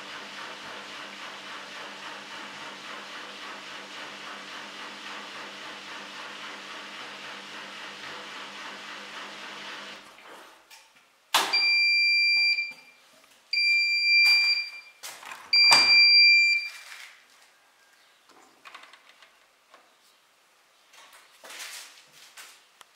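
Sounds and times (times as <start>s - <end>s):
washing machine electronic beeps: 11.5s - 16.8s.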